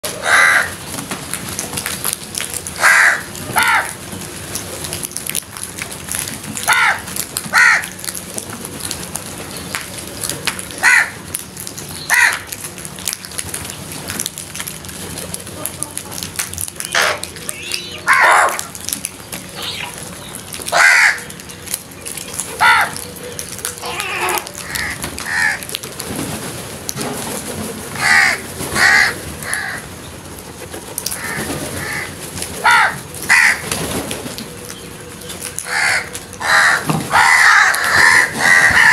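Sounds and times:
crows cawing: 0.2 - 0.8, 2.8 - 4.0, 6.6 - 8.0, 10.8 - 11.3, 12.1 - 12.6, 18.0 - 18.7, 20.7 - 21.4, 22.6 - 23.1, 23.8 - 25.7, 28.0 - 29.9, 31.1 - 33.6, 35.6 - 38.9.

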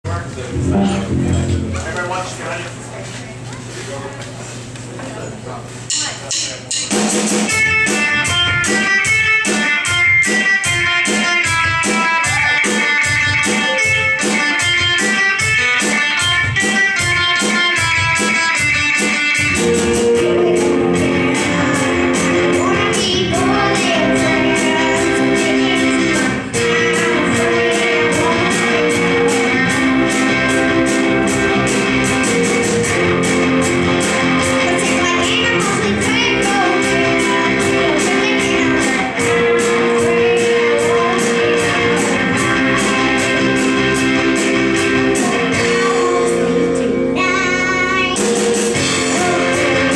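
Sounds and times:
rock band playing: 0.4 - 2.9, 6.7 - 49.9
girl singing: 20.0 - 30.9, 34.4 - 43.8, 44.4 - 49.9.

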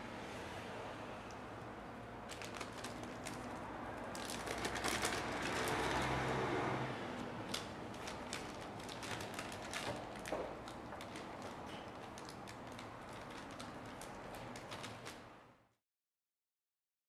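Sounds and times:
plastic bag crinkling: 2.2 - 6.2, 7.5 - 15.2.

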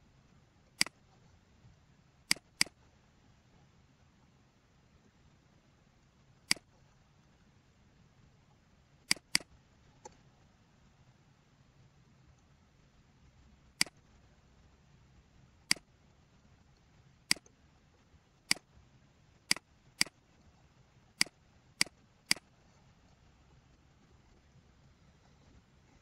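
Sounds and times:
computer mouse button clicking: 2.3 - 2.8, 9.1 - 9.5, 17.3 - 17.5, 21.2 - 22.5.

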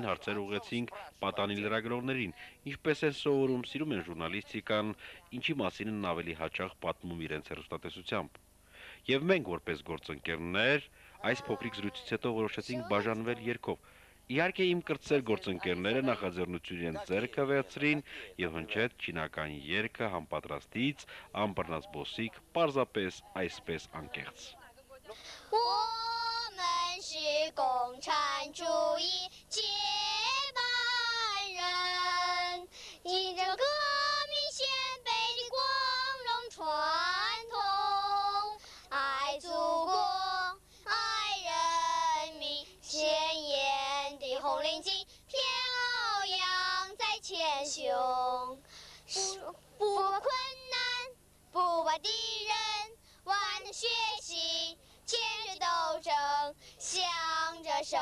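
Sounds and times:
child singing: 11.2 - 13.4, 25.1 - 58.0.

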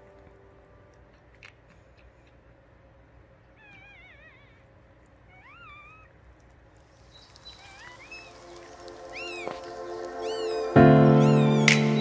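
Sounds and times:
puppy squealing: 3.6 - 4.7, 5.3 - 6.2, 7.4 - 8.3, 9.1 - 9.6, 10.2 - 12.0.

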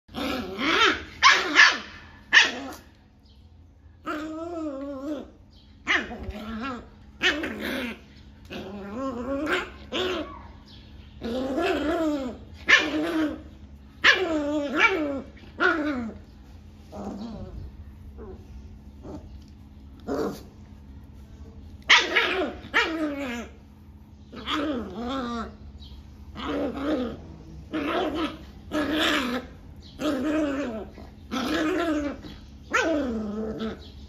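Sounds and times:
puppy growling: 0.1 - 3.0, 4.0 - 34.0
puppy barking: 0.5 - 2.9, 12.6 - 13.4, 14.0 - 15.8, 21.9 - 23.5.

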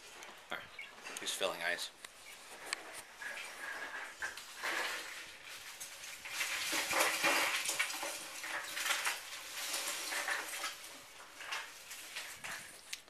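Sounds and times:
ice cubes clattering: 3.1 - 12.9.

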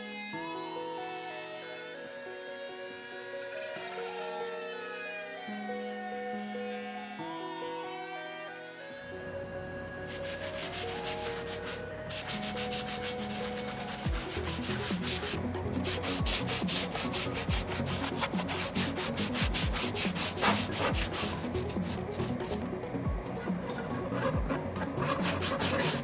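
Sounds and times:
sanding sponge rasping on wood: 10.1 - 22.6, 23.4 - 26.0.

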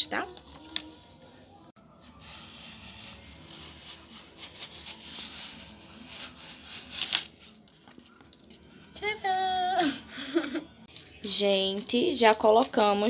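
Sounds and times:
paper crackling: 0.2 - 1.2, 2.1 - 7.6, 10.9 - 13.0
paper rustling and rubbing: 0.3 - 1.3, 2.0 - 8.1.

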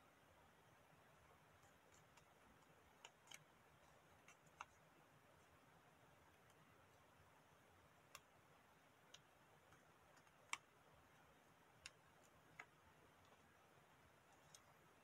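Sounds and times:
paper folding clicks: 1.6 - 5.0.

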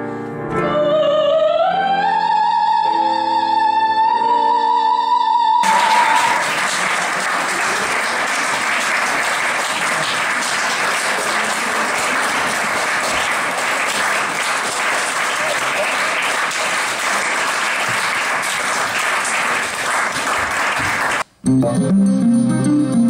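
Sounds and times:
woman singing operatic note: 0.6 - 6.2
audience applause: 5.6 - 21.3.

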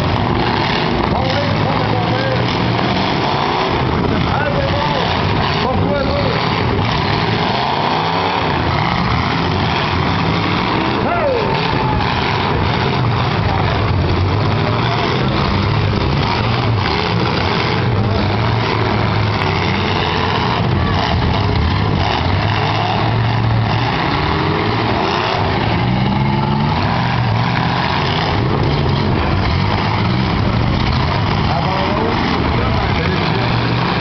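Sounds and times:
car engines revving: 0.0 - 34.0.

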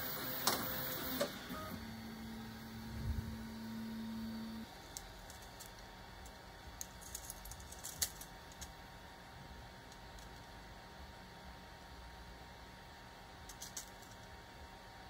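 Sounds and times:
faint steady hum: 0.0 - 15.0
plastic pieces clicking and rattling: 4.9 - 8.7, 13.5 - 14.3.

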